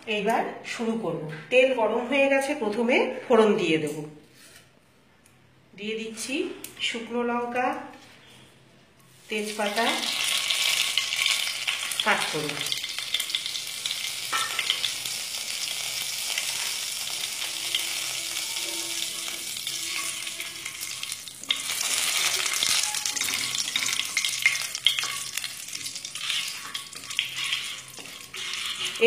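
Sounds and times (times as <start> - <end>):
wooden spatula scraping pan: 4.3 - 4.8, 26.0 - 29.0
spices sizzling in hot oil: 9.3 - 29.0.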